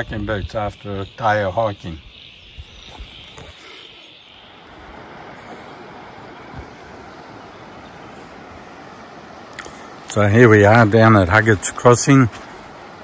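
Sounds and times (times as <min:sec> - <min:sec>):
crickets chirping: 0:00.0 - 0:13.0
river rushing over rocks: 0:04.5 - 0:13.0.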